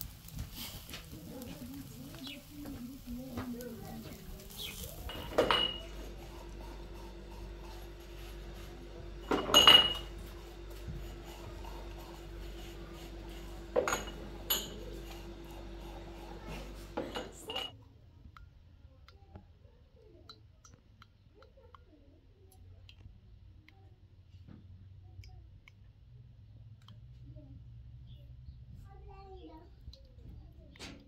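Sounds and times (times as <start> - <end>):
steady background hum: 0.0 - 31.0
dishes and utensils clattering: 0.3 - 17.7.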